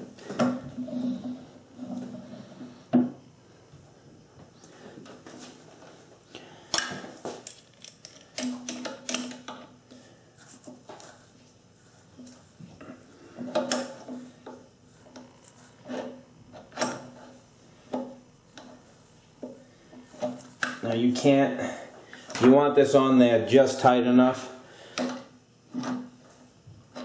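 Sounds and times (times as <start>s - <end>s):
metal parts clicking and clinking: 7.4s - 9.5s.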